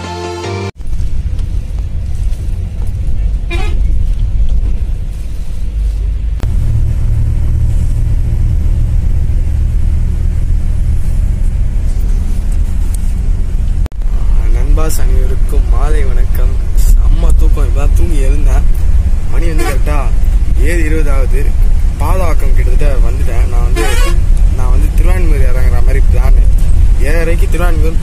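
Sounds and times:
horn toot: 0.0 - 0.7, 3.4 - 3.9, 19.4 - 20.1, 23.6 - 24.3
bus engine and road rumble: 0.0 - 28.0.

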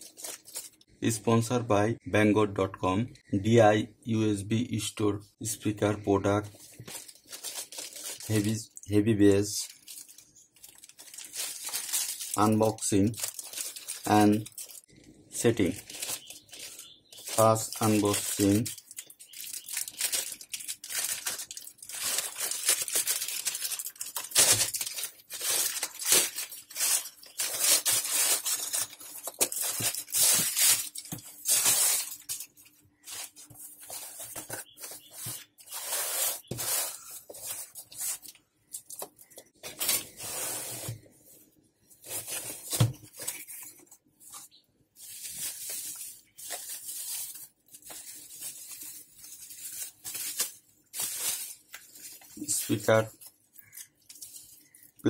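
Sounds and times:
bubble wrap rustling: 0.0 - 0.9, 6.6 - 8.6, 9.4 - 41.0, 42.0 - 55.0
plastic bag tearing and crinkling: 6.9 - 8.6, 9.6 - 14.9, 15.6 - 33.4, 45.0 - 54.8.

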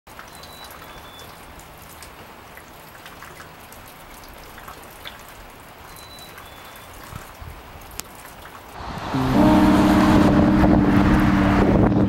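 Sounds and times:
light rain pattering: 0.1 - 9.2
water drips: 0.1 - 9.2.

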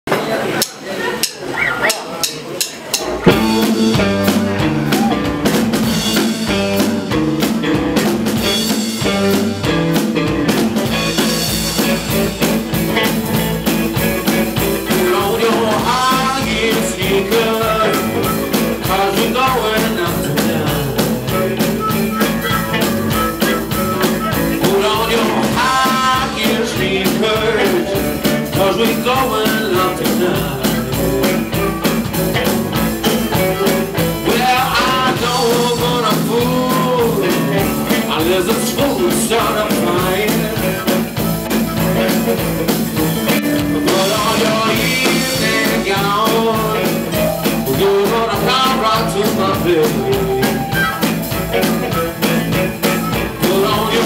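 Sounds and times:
live blues band playing: 0.1 - 54.0
harmonica bending notes: 2.9 - 9.5, 17.4 - 28.5, 30.0 - 54.0.

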